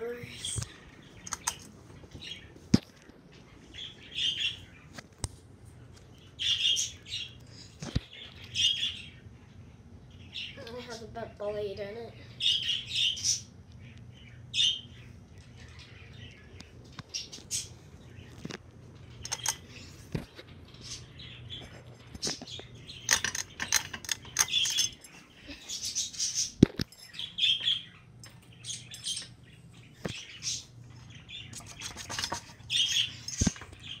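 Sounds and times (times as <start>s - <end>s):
bird chirping: 0.0s - 2.6s, 3.3s - 5.0s, 6.1s - 11.0s, 12.4s - 20.0s, 20.6s - 34.0s
ceiling fan humming: 0.0s - 34.0s
sharp clicks: 1.2s - 1.7s, 19.2s - 19.6s.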